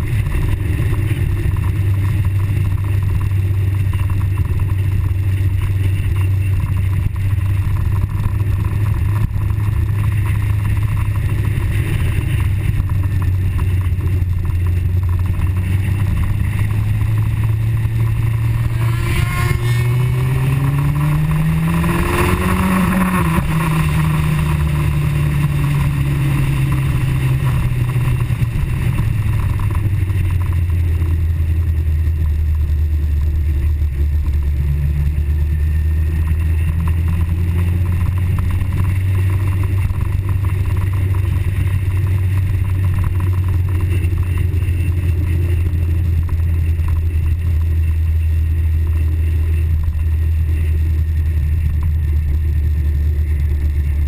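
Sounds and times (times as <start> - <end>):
motorcycle engine running and revving: 0.0 - 54.0
wind noise: 0.0 - 54.0.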